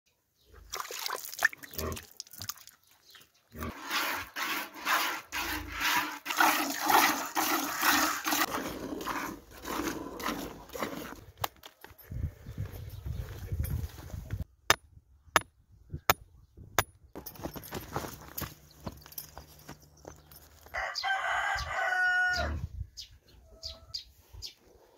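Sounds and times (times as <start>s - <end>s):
milk squirting into plastic bucket: 0.7s - 2.8s, 6.0s - 9.1s.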